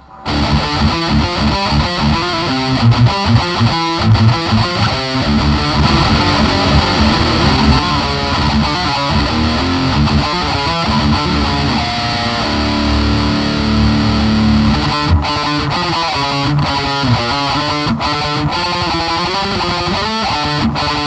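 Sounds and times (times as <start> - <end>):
distorted electric guitar riff: 0.0 - 21.0.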